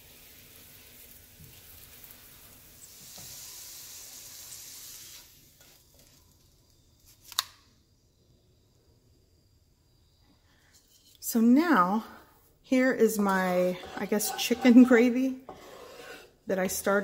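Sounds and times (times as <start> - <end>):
tortilla sizzling in hot oil: 0.0 - 6.3.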